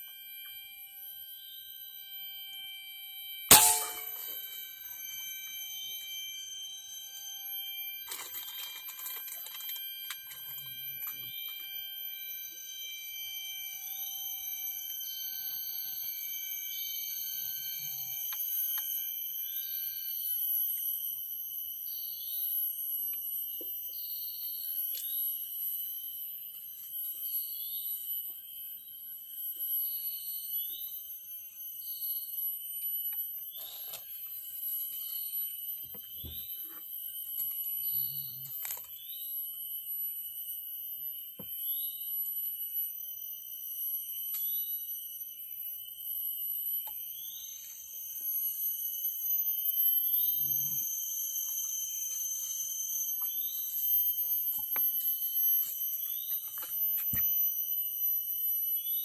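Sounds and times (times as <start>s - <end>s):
insects droning: 0.0s - 59.0s
falling high-pitched call: 3.5s - 8.2s.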